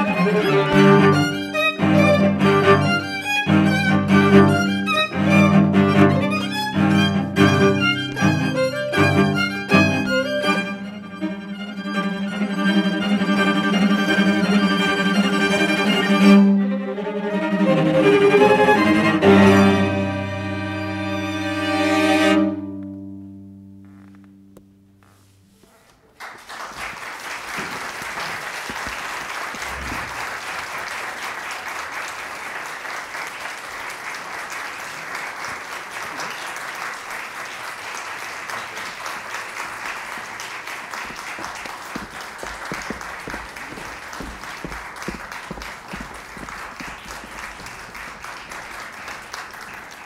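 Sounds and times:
audience applauding: 0:25.8 - 0:50.0.

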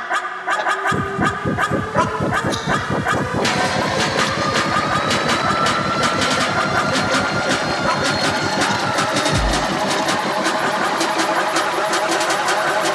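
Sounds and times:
engine running loudly: 0:00.9 - 0:12.9
short deep boom: 0:09.3 - 0:09.8.

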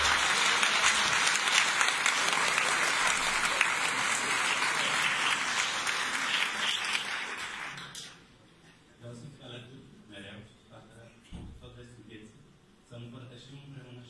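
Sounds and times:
audience applauding: 0:00.0 - 0:08.2.

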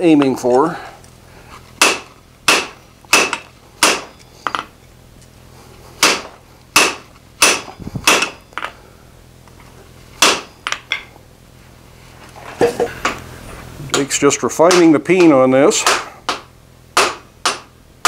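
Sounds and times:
hammer striking metal on anvil: 0:01.8 - 0:04.7, 0:06.0 - 0:08.7.

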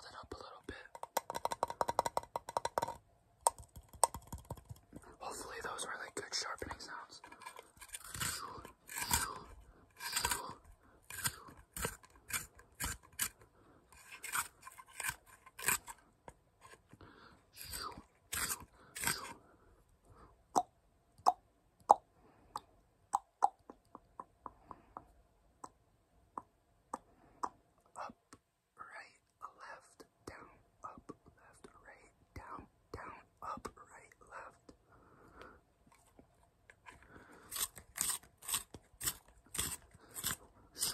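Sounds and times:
pencil sharpener crunching: 0:03.9 - 0:16.0, 0:17.6 - 0:19.4, 0:36.7 - 0:40.9.

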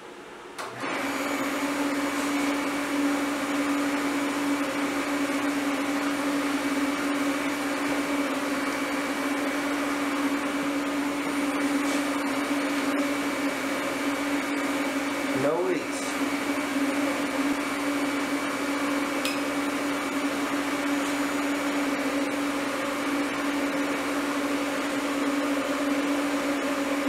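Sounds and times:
water chiller humming: 0:00.0 - 0:27.0.

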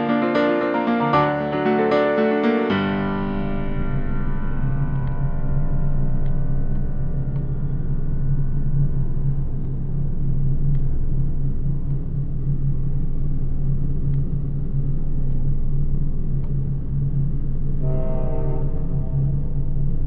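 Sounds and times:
low rumbling drone: 0:00.0 - 0:20.0
horn-like tone: 0:17.8 - 0:19.4.

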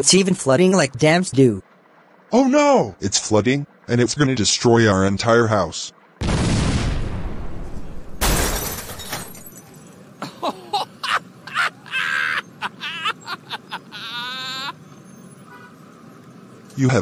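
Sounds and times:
cartoon boy laughing: 0:10.2 - 0:15.0.

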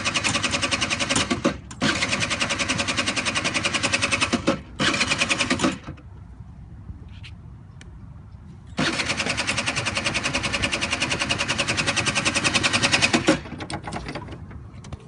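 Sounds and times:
small car engine running: 0:00.0 - 0:06.0, 0:08.8 - 0:14.4.

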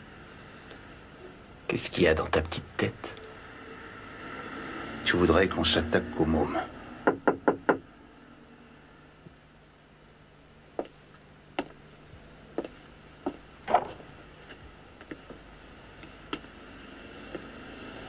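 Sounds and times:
faint steady hum: 0:00.0 - 0:18.0
knocks on wooden door: 0:07.1 - 0:07.8.

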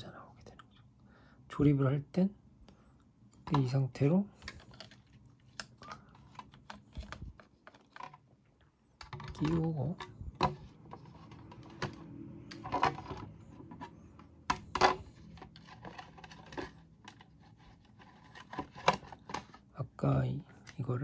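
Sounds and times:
plastic parts clicking and knocking: 0:03.3 - 0:08.3, 0:09.0 - 0:19.7.

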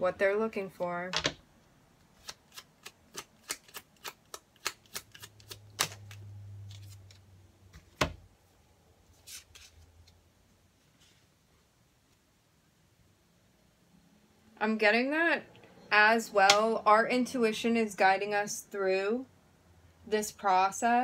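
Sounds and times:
cards shuffling: 0:02.0 - 0:08.2, 0:09.1 - 0:10.2.

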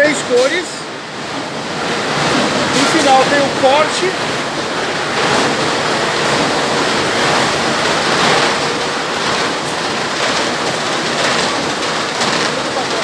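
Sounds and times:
loud steady machine noise: 0:00.0 - 0:13.0.

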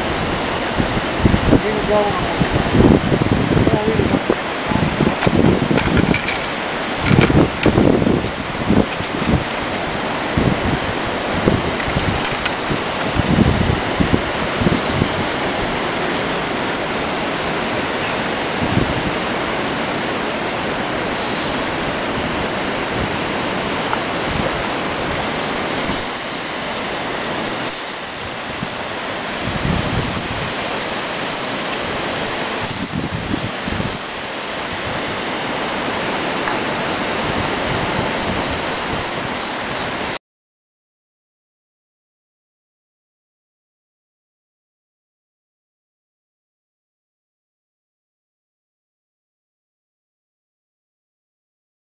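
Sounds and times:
river water rushing: 0:00.0 - 0:40.2
wind buffeting microphone: 0:00.0 - 0:40.2.

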